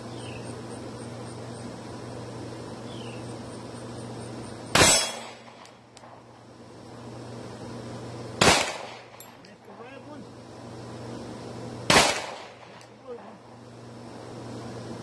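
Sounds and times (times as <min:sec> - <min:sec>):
pistol shot: 0:04.7 - 0:05.8, 0:08.4 - 0:09.2, 0:11.9 - 0:12.9.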